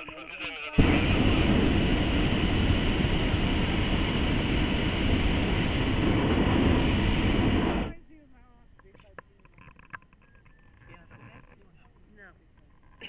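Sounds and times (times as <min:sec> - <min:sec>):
propane burner roaring: 0:00.8 - 0:08.0.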